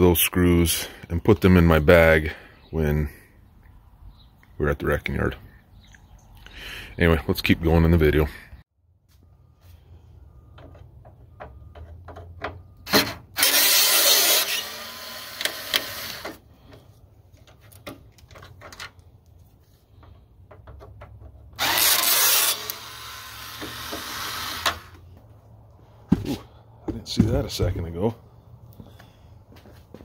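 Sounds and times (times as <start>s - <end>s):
electric screwdriver running: 13.4s - 16.3s, 21.6s - 24.9s.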